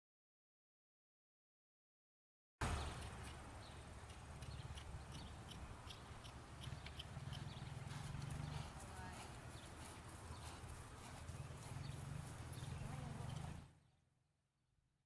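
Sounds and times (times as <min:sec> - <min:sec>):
short high chirps and ticks: 0:02.8 - 0:07.7.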